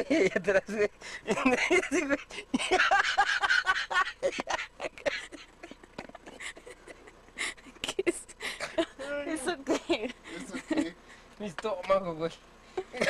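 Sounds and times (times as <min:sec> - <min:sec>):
man laughing breathlessly: 0:00.0 - 0:09.2, 0:10.0 - 0:11.3.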